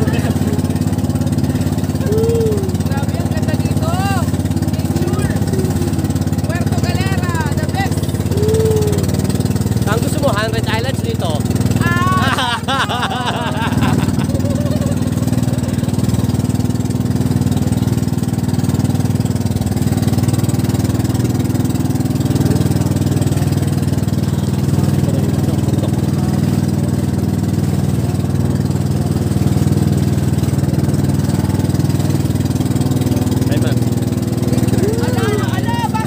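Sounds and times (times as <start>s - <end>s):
vehicle engine running loudly: 0.0s - 36.0s.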